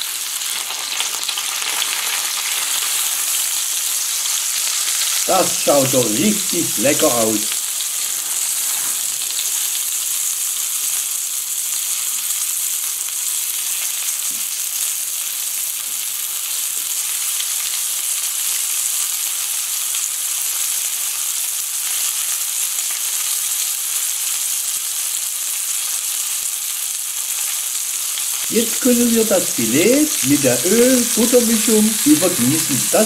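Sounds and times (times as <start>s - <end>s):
fish sizzling in a pan: 0.0s - 33.0s.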